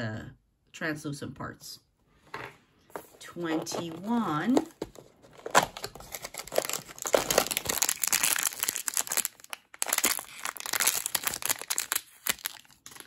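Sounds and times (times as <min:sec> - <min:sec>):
wrapper bag crinkling: 0:03.5 - 0:13.0.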